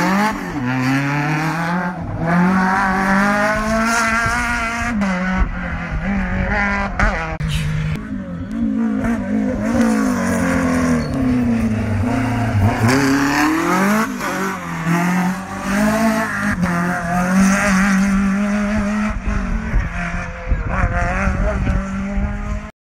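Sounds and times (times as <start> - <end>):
car engine revving hard: 8.9 - 22.7.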